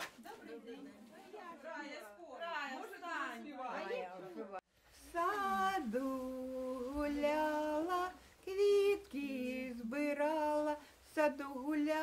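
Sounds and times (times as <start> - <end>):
woman singing unaccompanied: 5.0 - 12.0
singer breathing: 10.8 - 11.1.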